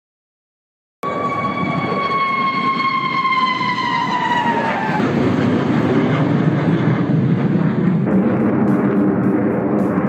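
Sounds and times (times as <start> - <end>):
high jet engine whine: 1.0 - 10.0
jet flying overhead rumble: 1.0 - 10.0.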